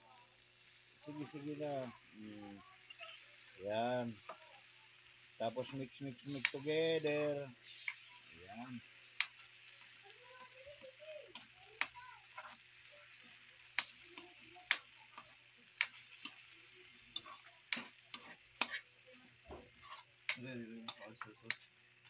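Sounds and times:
sauce sizzling and bubbling: 0:00.0 - 0:22.0
metal spatula scraping a wok: 0:02.9 - 0:03.3, 0:05.5 - 0:08.2, 0:12.3 - 0:12.7, 0:14.7 - 0:21.8.

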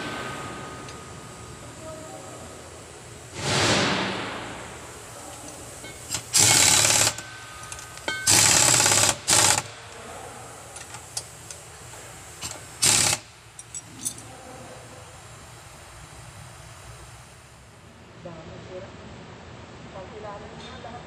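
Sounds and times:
pneumatic impact wrench hammering: 0:03.3 - 0:10.0, 0:10.7 - 0:14.3.

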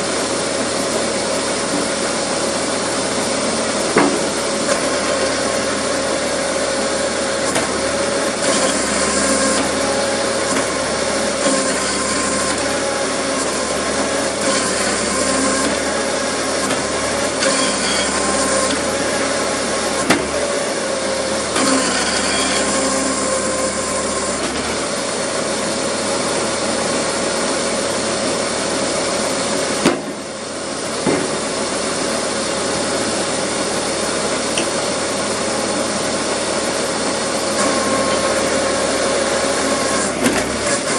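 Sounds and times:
tractor engine and hydraulic pump whine: 0:00.0 - 0:40.9
sharp knocks of logs splitting: 0:03.8 - 0:06.1, 0:06.7 - 0:16.0, 0:19.9 - 0:20.6, 0:29.8 - 0:30.3, 0:31.0 - 0:31.5, 0:39.0 - 0:40.9.

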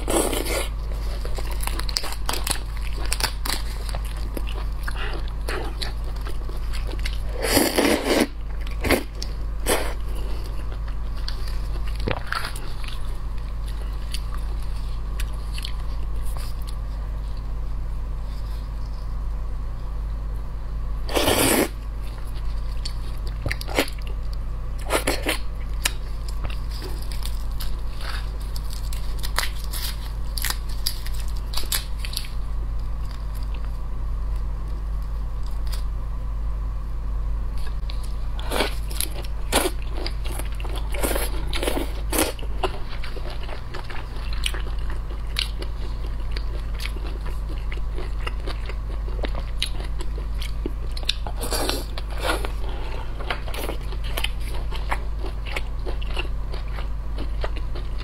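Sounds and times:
wet biting and chewing: 0:00.0 - 0:16.8, 0:37.6 - 0:58.0.

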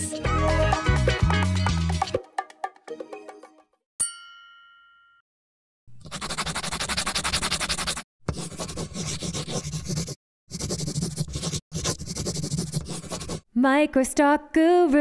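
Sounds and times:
bright ding: 0:04.0 - 0:05.2
scribbling on paper: 0:06.0 - 0:13.5.

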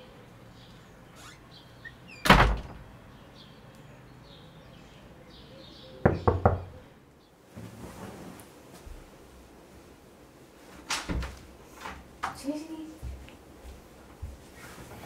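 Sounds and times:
knocking on a wooden door: 0:06.0 - 0:06.7
soft shuffle of movement: 0:07.4 - 0:15.0.

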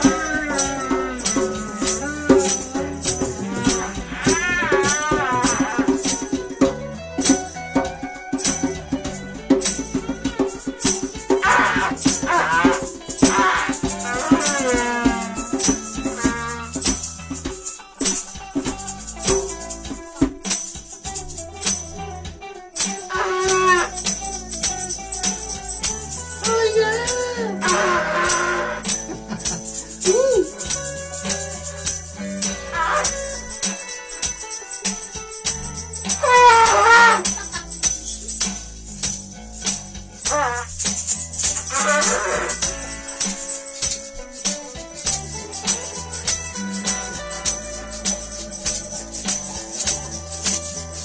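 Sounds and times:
sliding wavering melody: 0:00.0 - 0:19.8, 0:21.2 - 0:38.2
rattles shaken: 0:00.0 - 0:51.0.

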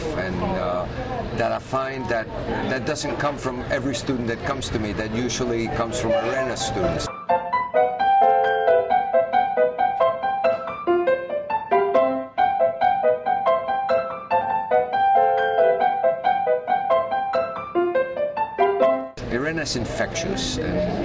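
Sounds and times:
piano playing quick run: 0:05.3 - 0:19.3.

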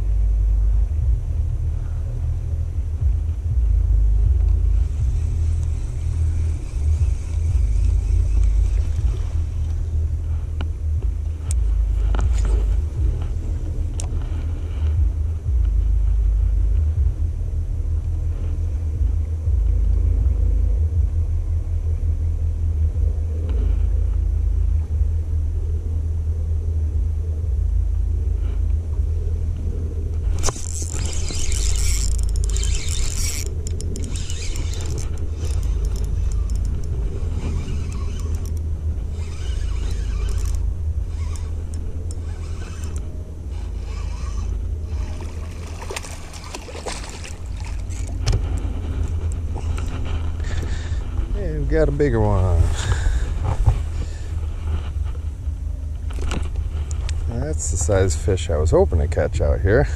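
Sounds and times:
wind buffeting microphone: 0:00.0 - 0:59.9
fishing reel whirring: 0:04.2 - 0:15.0, 0:29.4 - 0:58.6.

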